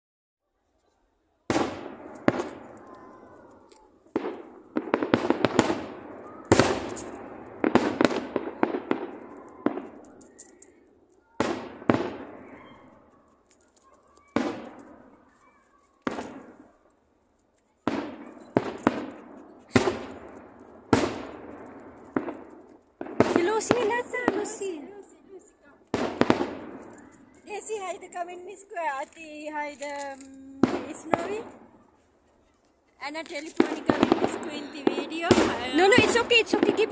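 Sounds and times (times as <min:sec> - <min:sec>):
firework shells booming: 0:01.5 - 0:13.0, 0:14.2 - 0:15.3, 0:16.0 - 0:16.8, 0:17.8 - 0:25.2, 0:25.8 - 0:28.1, 0:30.2 - 0:31.8, 0:33.4 - 0:36.9.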